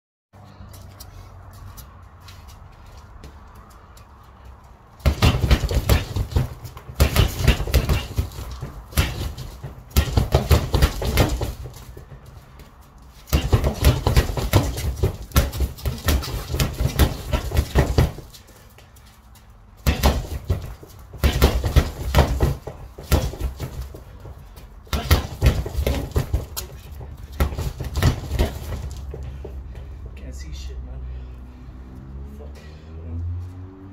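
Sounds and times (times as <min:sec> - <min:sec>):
gloves punching a bag: 0:05.0 - 0:12.3, 0:13.2 - 0:18.5, 0:19.8 - 0:29.8.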